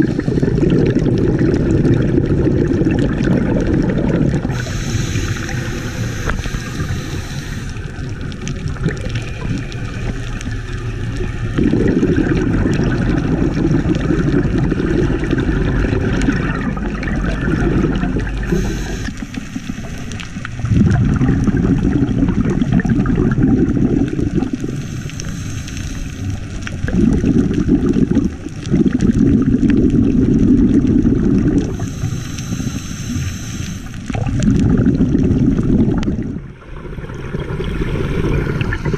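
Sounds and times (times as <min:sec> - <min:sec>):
bubbling exhaled air: 0:00.0 - 0:38.9
regulator hissing inhalations: 0:04.5 - 0:07.9, 0:18.4 - 0:20.2, 0:24.7 - 0:26.3, 0:31.7 - 0:34.0.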